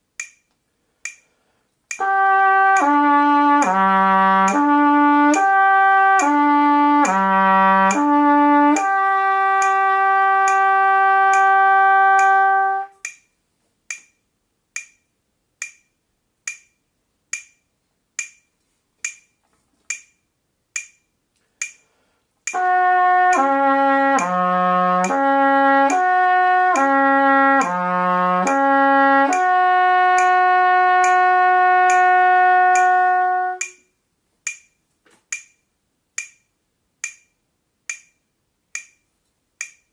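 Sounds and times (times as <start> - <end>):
metronome ticking: 0.0 - 39.9
trumpet playing slurred notes: 2.0 - 13.0, 22.5 - 33.8.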